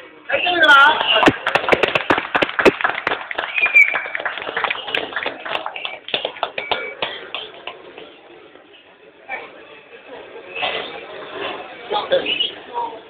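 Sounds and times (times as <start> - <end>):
small group clapping: 0.9 - 8.2.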